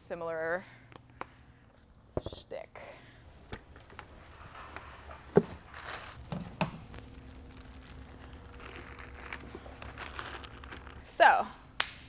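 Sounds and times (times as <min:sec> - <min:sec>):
faint steady hum: 0:00.0 - 0:12.0
plastic sheeting crinkling: 0:03.8 - 0:11.1.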